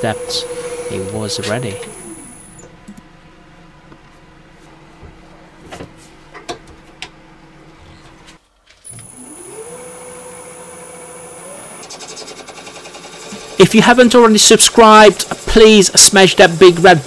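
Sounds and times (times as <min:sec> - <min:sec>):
wood lathe motor whine: 0:00.0 - 0:02.6, 0:08.9 - 0:13.6.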